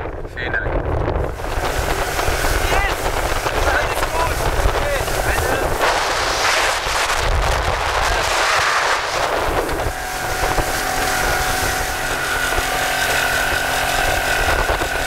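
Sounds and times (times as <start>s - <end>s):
wind buffeting microphone: 0.0s - 15.0s
water rushing past hull: 1.0s - 15.0s
boat engine whine: 1.1s - 15.0s.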